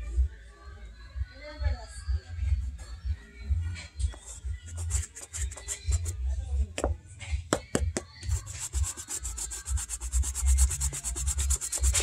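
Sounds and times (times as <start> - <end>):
brush rasping on suede: 8.3 - 12.0.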